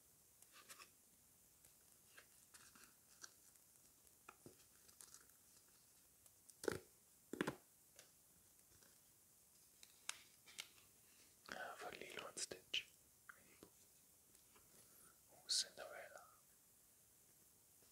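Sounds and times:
packet crinkling: 4.6 - 5.8.

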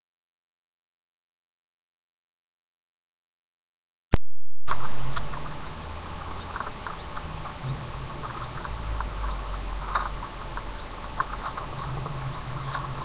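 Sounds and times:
low hum: 4.1 - 13.0
rat scratching and clicking: 4.7 - 13.0.

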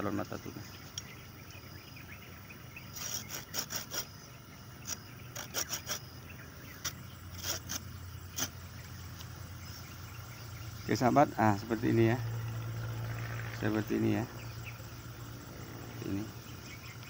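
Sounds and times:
saw scraping a stem: 2.9 - 4.2, 4.8 - 9.3.

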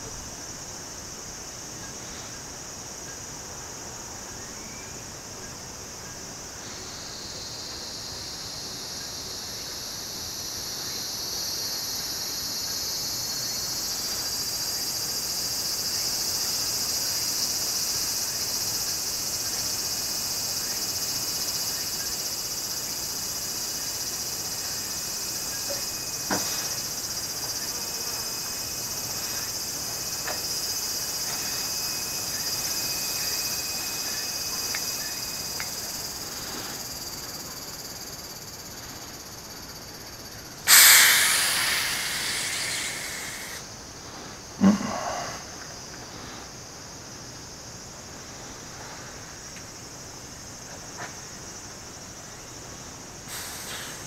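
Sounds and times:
insect chorus: 0.0 - 54.0
gas hissing from a hose: 40.7 - 43.6, 53.3 - 54.0.

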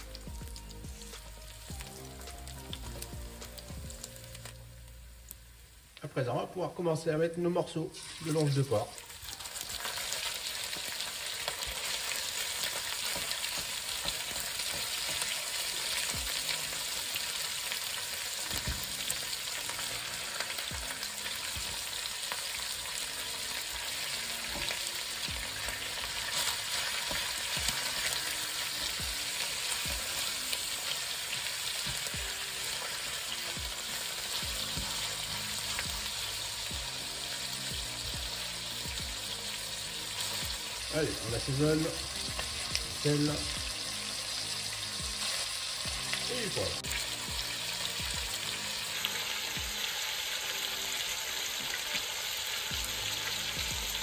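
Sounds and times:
meat sizzling in oil: 0.0 - 54.0.

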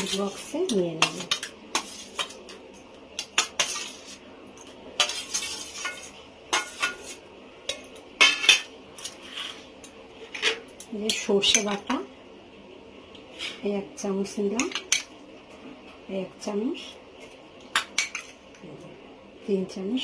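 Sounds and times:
metal spoon scraping steel: 0.0 - 2.6, 3.2 - 4.2, 5.0 - 11.8.

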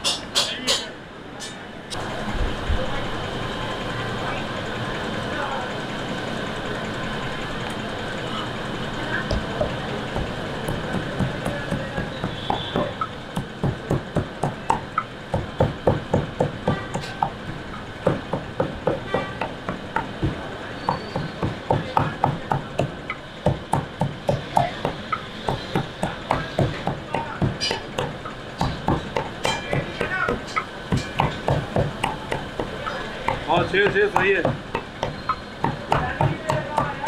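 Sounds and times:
cleaver chopping meat on wood: 9.3 - 37.0.

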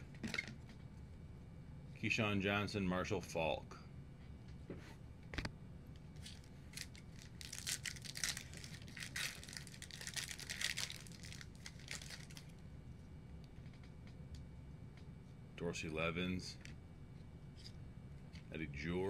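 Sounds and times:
trading cards rustling: 6.2 - 12.5.

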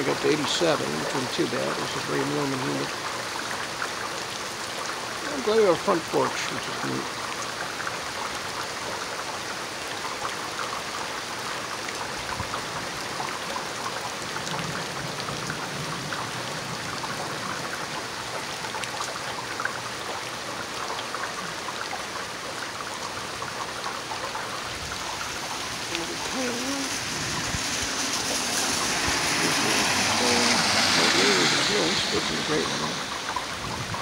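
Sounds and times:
heavy rain hiss: 0.0 - 11.6, 22.3 - 34.0
drips and spatters: 0.0 - 34.0.

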